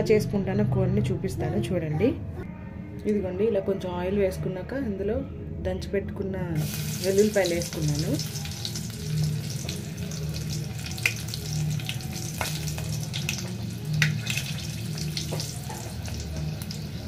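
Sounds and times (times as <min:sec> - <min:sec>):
garlic sizzling in hot oil: 0:06.6 - 0:17.0.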